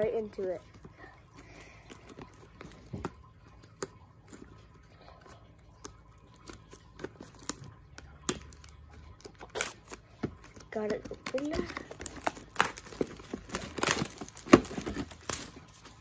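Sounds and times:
plastic shrink-wrap crackling: 5.4s - 16.0s.

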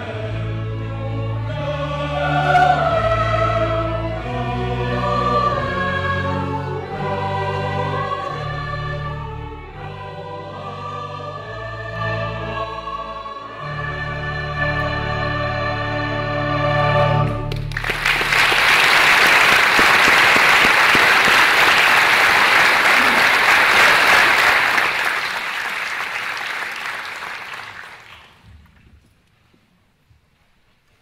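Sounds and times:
mixed choir singing: 0.0s - 17.5s
violins and cello: 0.0s - 17.7s
audience applause: 17.5s - 28.4s.

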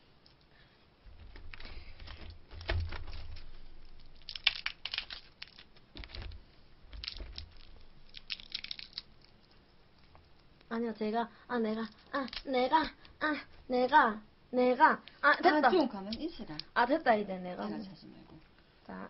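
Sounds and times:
crab shell crunching and cracking: 1.1s - 10.7s, 11.9s - 13.2s.

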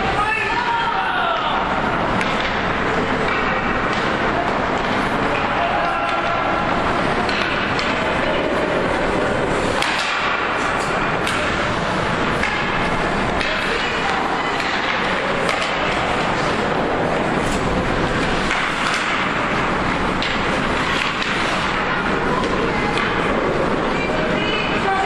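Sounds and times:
hockey sticks and puck clacking: 0.0s - 25.0s
hubbub of spectator voices: 2.8s - 17.8s.

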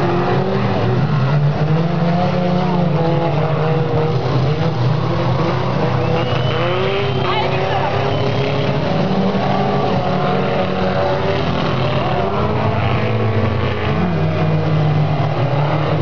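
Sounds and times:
race car engines droning: 0.0s - 16.0s.

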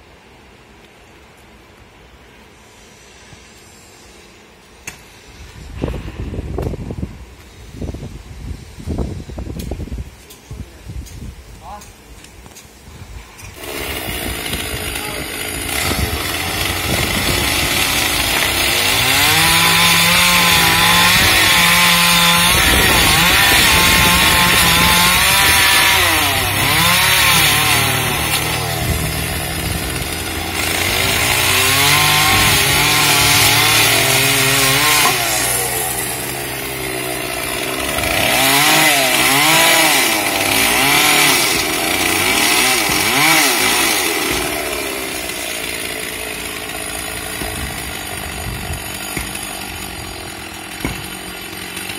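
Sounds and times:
chainsaw revving cutting branches: 13.4s - 51.9s.

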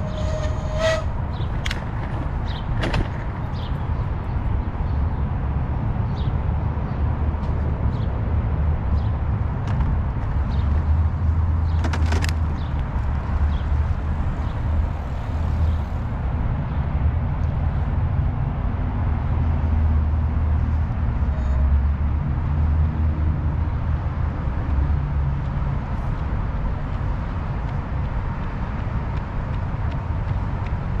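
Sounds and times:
wind buffeting microphone: 0.0s - 21.3s.

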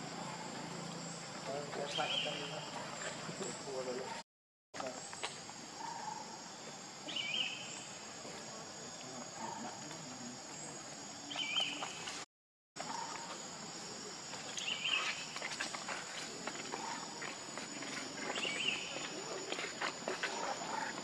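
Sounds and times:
high-pitched insect chorus: 0.0s - 4.1s, 12.8s - 21.0s.

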